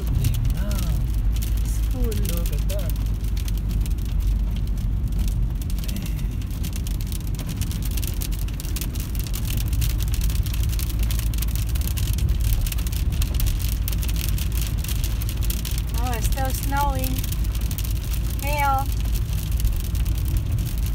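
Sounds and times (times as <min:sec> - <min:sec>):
car tyres and engine rumble: 0:00.0 - 0:20.9
rain and hail on car roof: 0:00.0 - 0:20.9.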